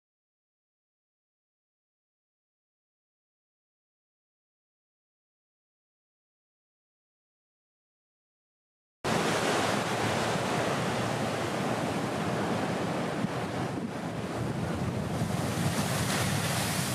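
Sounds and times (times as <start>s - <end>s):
ocean surf breaking: 9.1s - 16.9s
wind buffeting microphone: 9.1s - 16.9s.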